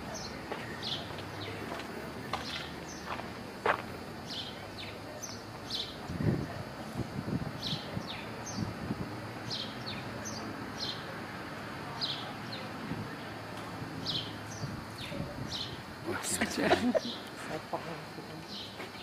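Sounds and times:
steady outdoor hiss: 0.0s - 19.0s
small songbirds chirping: 0.1s - 1.7s, 2.4s - 3.2s, 4.2s - 6.6s, 7.6s - 8.8s, 9.4s - 11.1s, 11.9s - 13.4s, 14.0s - 16.0s.

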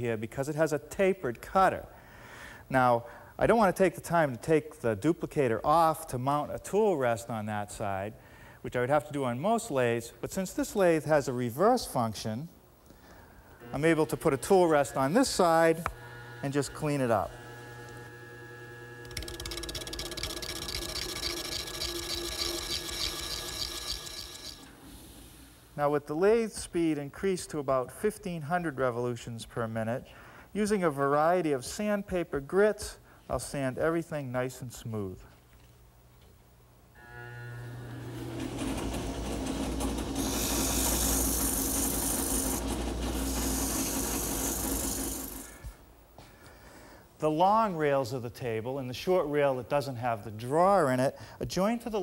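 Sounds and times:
lathe running hum: 13.6s - 24.8s, 37.0s - 45.6s
sandpaper sanding hiss: 40.2s - 45.6s.

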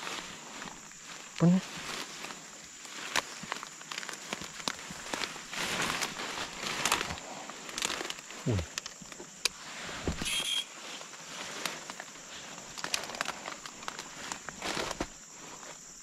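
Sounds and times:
undergrowth rustling and crackling: 0.0s - 16.0s
twigs snapping: 1.8s - 9.6s, 11.5s - 15.2s.

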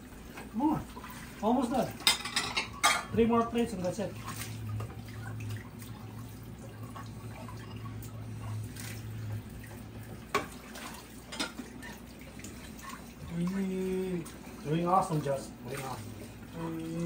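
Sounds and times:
low steady hum: 0.0s - 17.0s
dishes clinking: 1.9s - 3.2s, 11.3s - 12.0s.

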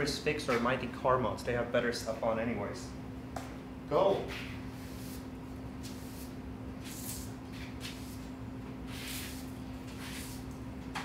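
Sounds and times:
steady low hum: 0.0s - 11.0s
broom sweeping concrete floor: 4.2s - 10.7s.

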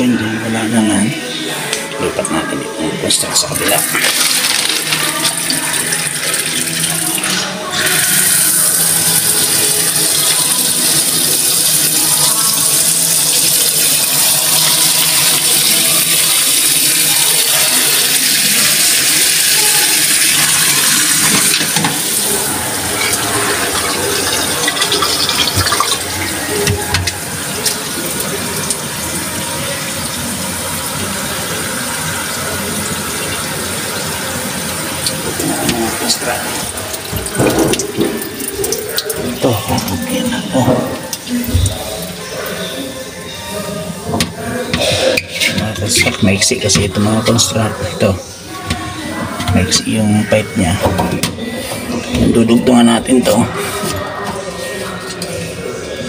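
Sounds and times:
water going down the drain: 3.4s - 55.6s
faucet water splashing into sink: 3.6s - 42.7s.

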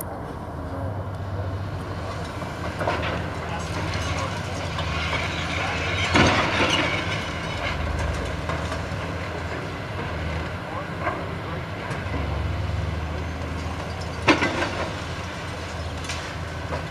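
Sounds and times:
excavator diesel engine: 0.0s - 16.9s
concrete crunching and cracking: 2.1s - 10.5s.

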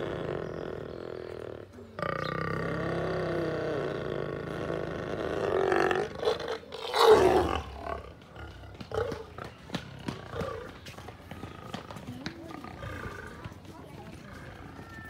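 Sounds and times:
lion snarling loudly: 0.0s - 9.4s
lions growling: 0.0s - 14.7s.

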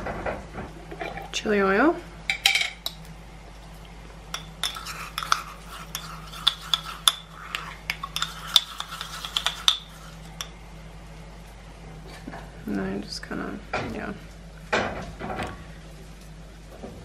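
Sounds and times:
metal spoon scraping glass jar: 4.6s - 10.5s.

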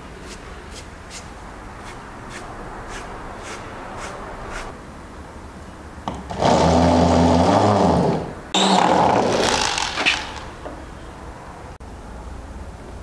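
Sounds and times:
electric drill boring into wood: 6.3s - 10.4s.

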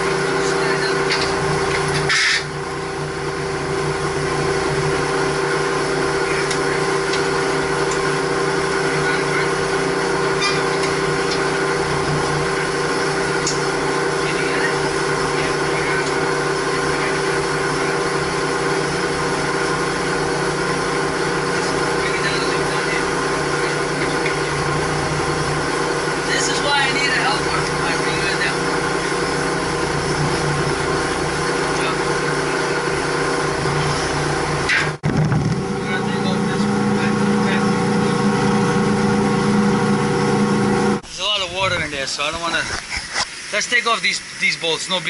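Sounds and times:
machinery drone: 0.0s - 45.0s.

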